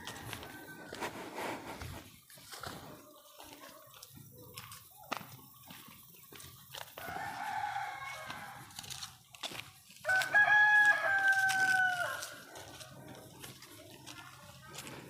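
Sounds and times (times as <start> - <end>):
rooster crowing: 0.0 - 1.1, 7.0 - 8.8, 10.0 - 12.5.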